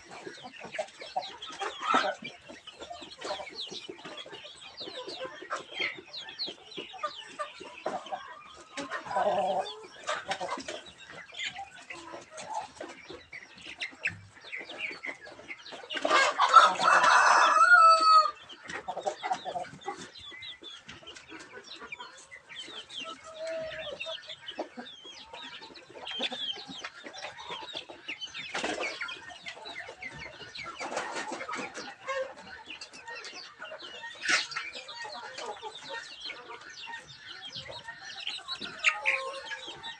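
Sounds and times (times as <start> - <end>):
young chickens clucking: 0.0 - 39.9
rooster crowing: 16.5 - 18.4.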